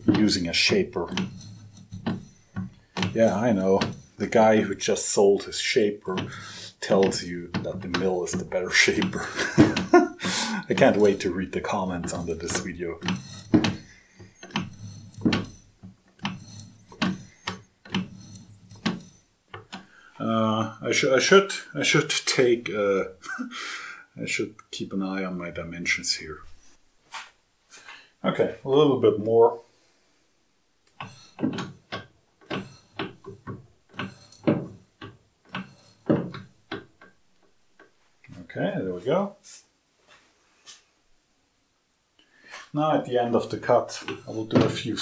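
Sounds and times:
slotting tool scraping metal: 0.0 - 4.6, 6.2 - 19.9, 30.9 - 34.8, 35.5 - 36.6, 43.4 - 45.0.

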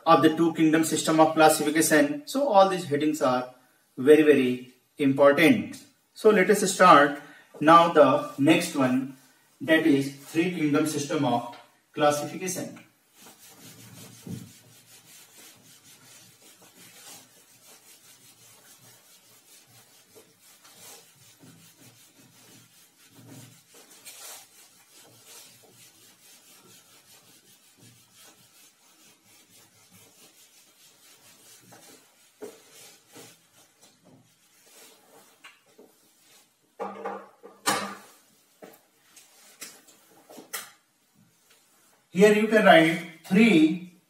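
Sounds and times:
eraser swishing on whiteboard: 12.9 - 36.6, 38.0 - 42.0.

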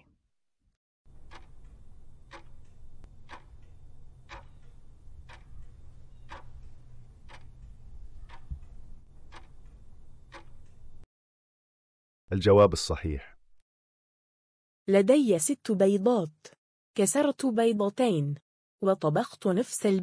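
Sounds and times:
clock ticking: 1.1 - 11.1.

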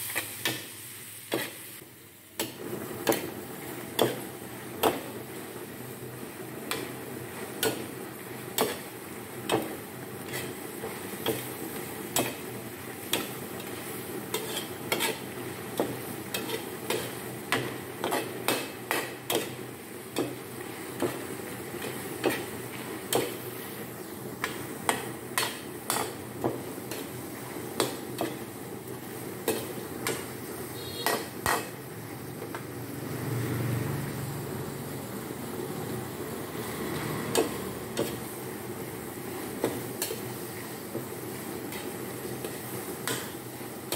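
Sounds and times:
food sizzling: 0.0 - 43.9
metal ladle scraping a wok: 10.2 - 10.6, 14.3 - 15.4, 16.3 - 17.2.

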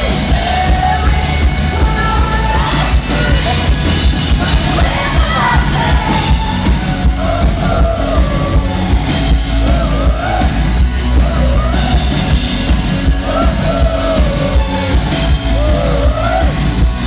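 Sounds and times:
woman singing lead vocal: 0.0 - 12.4
live pop-rock band: 0.0 - 17.0.

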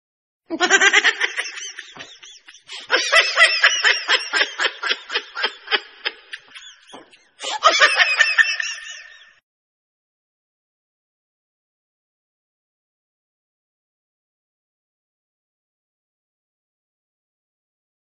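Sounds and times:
high-pitched laughter: 0.5 - 9.4.

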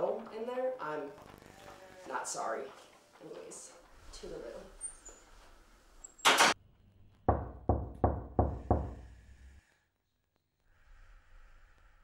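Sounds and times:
knocks on a door: 7.3 - 9.0.

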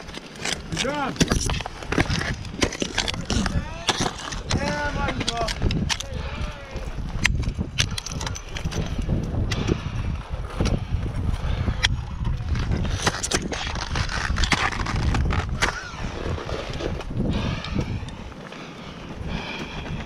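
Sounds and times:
scraping on ice: 0.0 - 6.0, 11.5 - 17.6
ice axe striking ice: 0.0 - 6.1, 12.8 - 16.0.

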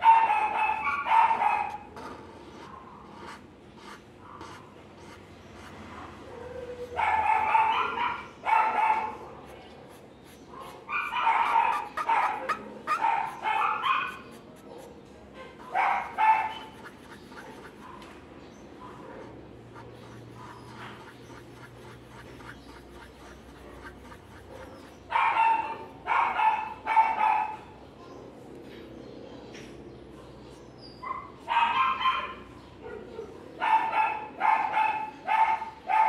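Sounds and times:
dog barking: 0.0 - 1.9, 4.2 - 4.7, 5.8 - 9.5, 10.5 - 19.4, 20.1 - 27.7, 31.0 - 36.0.

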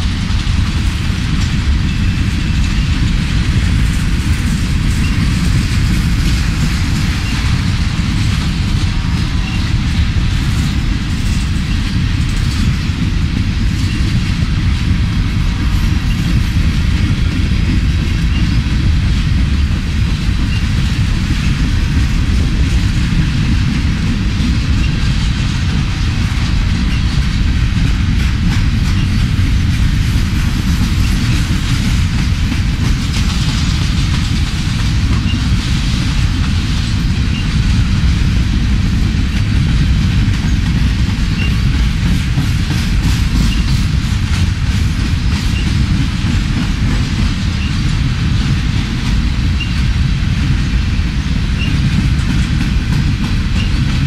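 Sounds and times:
freight train wheels rumbling on rail: 0.0 - 54.0.

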